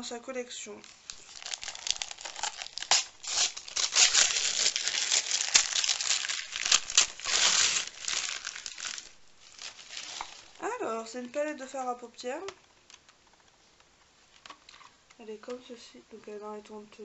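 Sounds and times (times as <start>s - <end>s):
wrapping paper crinkling and tearing: 0.8s - 10.8s.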